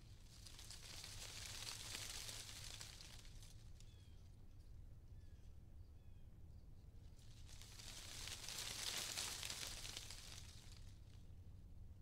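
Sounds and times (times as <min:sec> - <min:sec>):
wind hissing through leaves: 0:00.2 - 0:03.5, 0:07.3 - 0:11.0
faint bird chirps: 0:03.8 - 0:04.3.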